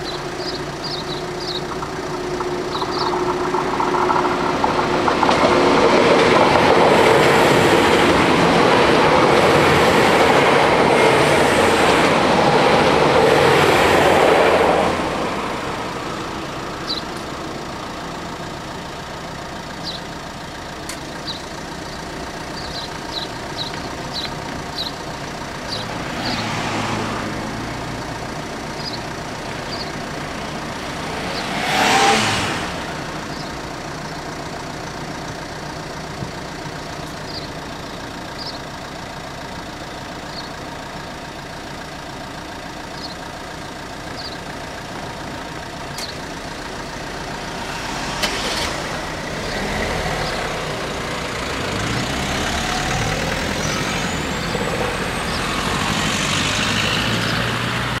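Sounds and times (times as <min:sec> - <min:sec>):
car engine and tyre noise: 0:00.0 - 0:58.0
cars passing: 0:00.0 - 0:58.0.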